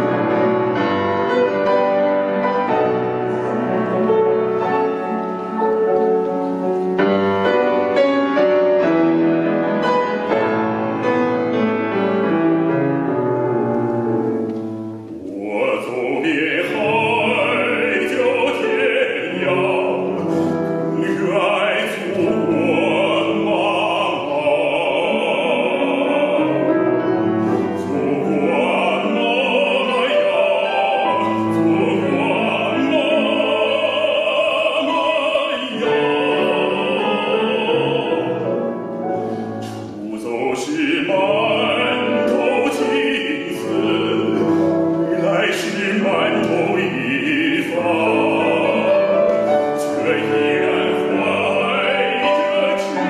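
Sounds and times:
grand piano playing: 0.0 - 53.0
man singing operatically with vibrato: 0.0 - 53.0.

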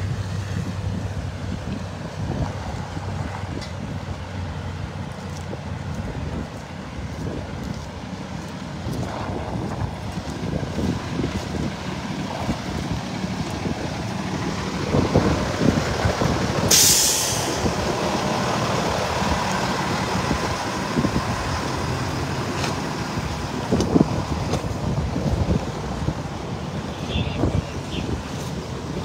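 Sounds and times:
truck engine rumble: 0.0 - 29.0
wind buffeting microphone: 0.0 - 29.0
air brake hiss: 16.7 - 17.6.

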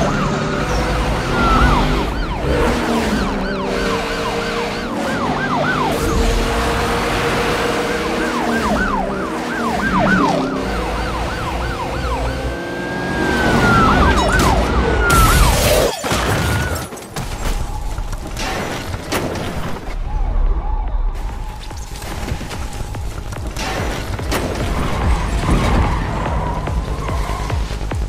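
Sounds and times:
police siren: 0.0 - 16.9, 19.9 - 23.2.

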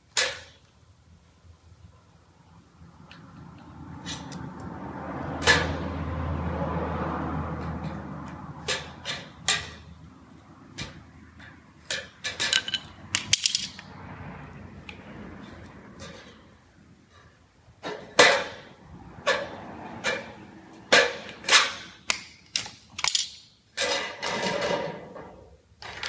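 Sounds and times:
tools clattering: 10.8 - 13.9, 19.3 - 25.2
tools tapping on metal: 10.8 - 13.9.

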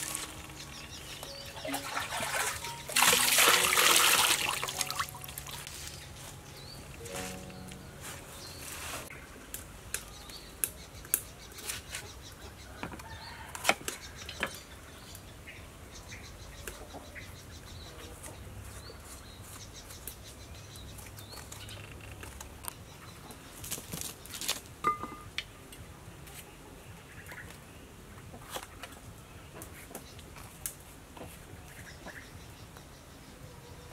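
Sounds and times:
leafy greens rustling in basket: 0.0 - 9.2.

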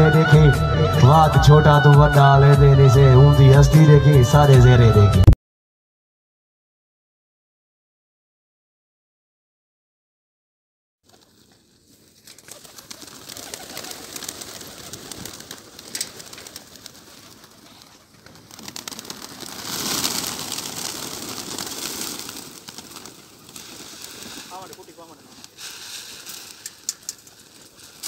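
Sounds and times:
flapping wings: 11.0 - 28.0
rustle of wings and feet: 11.0 - 28.0
pigeons cooing: 12.4 - 28.0.

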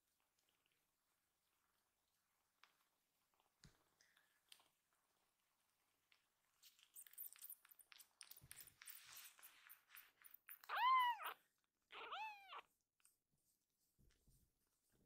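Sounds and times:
soft clicks and rustling: 2.4 - 5.2
kitten meowing: 10.6 - 12.7.

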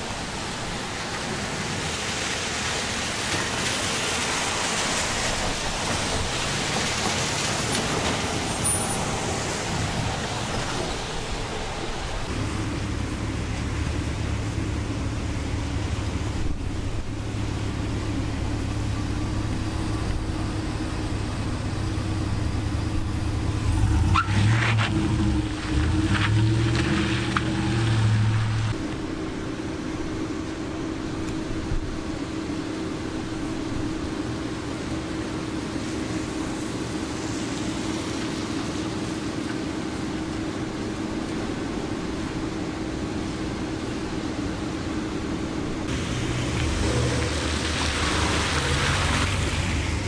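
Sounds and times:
rain hiss: 0.0 - 50.0
wet street noise: 0.0 - 50.0
truck engine idling: 5.4 - 24.1.

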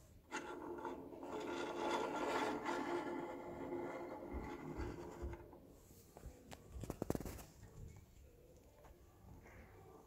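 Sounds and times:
plastic parts rubbing and scraping: 0.3 - 5.6, 6.8 - 7.6.

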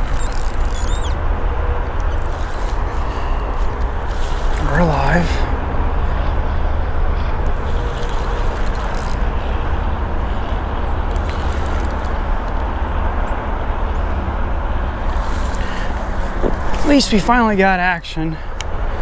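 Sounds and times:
fishing reel cranking: 0.0 - 1.2, 2.0 - 4.7, 7.6 - 9.8, 11.0 - 12.2
steady low rumble: 0.0 - 19.0.

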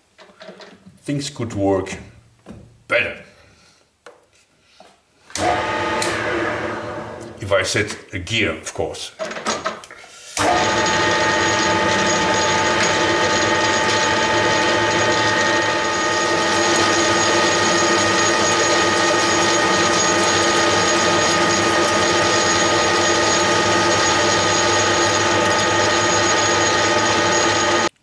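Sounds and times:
metal lathe gear whine: 10.4 - 28.0.

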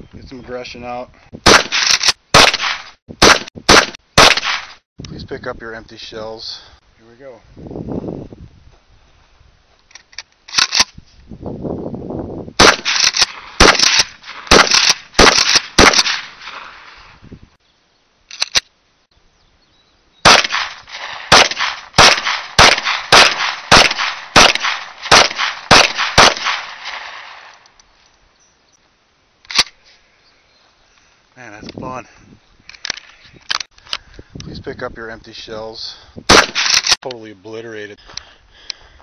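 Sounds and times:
gunshots with short echo: 1.4 - 4.8, 12.6 - 17.0, 20.2 - 27.6, 36.3 - 37.0.

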